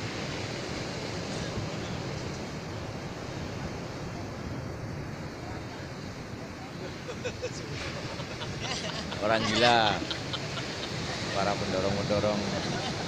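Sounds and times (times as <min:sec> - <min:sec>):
surf breaking on beach: 0:00.0 - 0:13.0
wind on microphone: 0:00.0 - 0:13.0.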